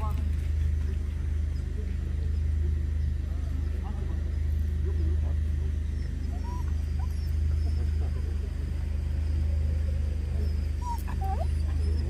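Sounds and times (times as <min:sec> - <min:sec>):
steady low hum: 0:00.0 - 0:12.0
dogs whining: 0:05.3 - 0:12.0.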